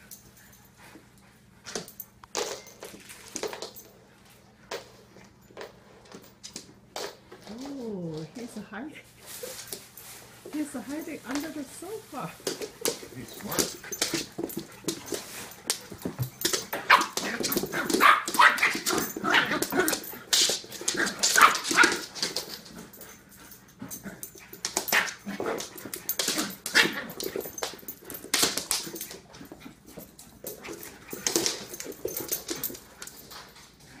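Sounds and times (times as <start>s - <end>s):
dogs yipping and barking: 15.9s - 22.4s, 23.9s - 28.3s.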